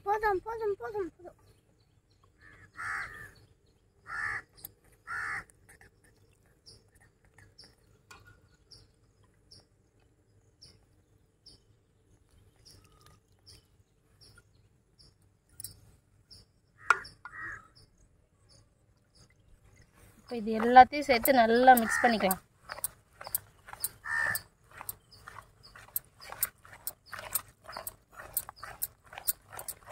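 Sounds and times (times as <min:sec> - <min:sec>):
crow cawing: 0:02.4 - 0:03.4, 0:04.0 - 0:05.5, 0:16.8 - 0:17.7, 0:21.8 - 0:22.4, 0:24.0 - 0:24.4.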